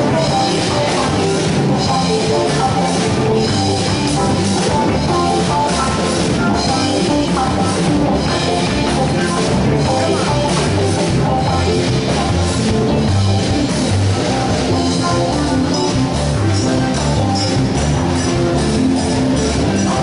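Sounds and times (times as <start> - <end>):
rock music with drums and guitar: 0.0 - 20.0.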